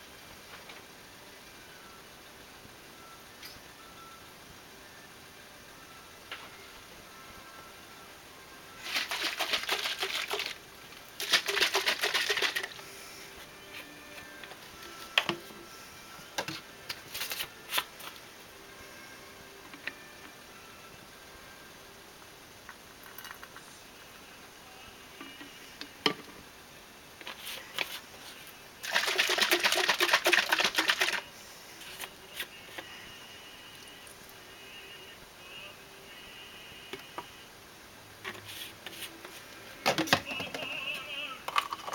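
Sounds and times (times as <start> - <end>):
plastic containers clicking and rattling: 8.8 - 10.6, 11.2 - 12.8, 28.8 - 31.2, 39.8 - 40.7, 41.5 - 41.9.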